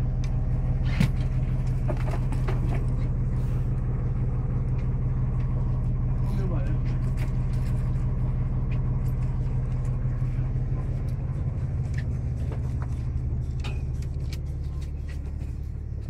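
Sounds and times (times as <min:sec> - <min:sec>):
boat engine humming: 0:00.0 - 0:16.0.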